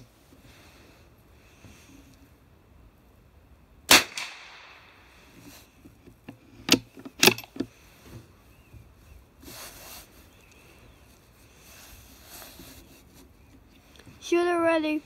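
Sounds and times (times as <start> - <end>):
rifle shot with echo: 3.9 - 5.1
rifle handling clicks and knocks: 5.8 - 7.8.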